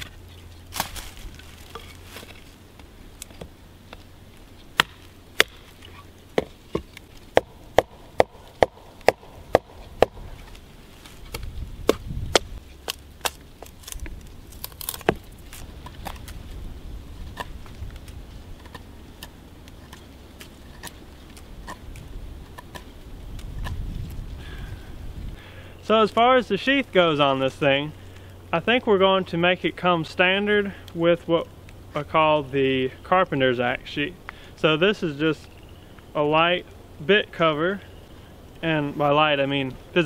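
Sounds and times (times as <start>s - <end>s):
axe chopping thin wood: 4.7s - 10.6s, 11.2s - 16.4s.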